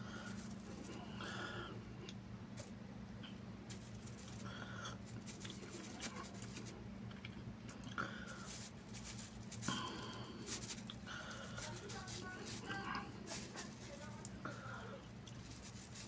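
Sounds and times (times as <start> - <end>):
steady low hum: 0.0 - 16.0
plastic crinkles: 0.2 - 1.0, 3.7 - 6.8, 8.2 - 16.0
fingers picking through food: 2.0 - 16.0
chewing: 5.2 - 16.0.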